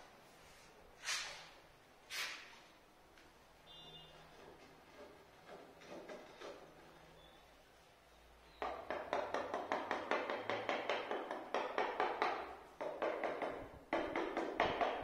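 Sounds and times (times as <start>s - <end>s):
hammer tapping on concrete: 8.6s - 15.0s.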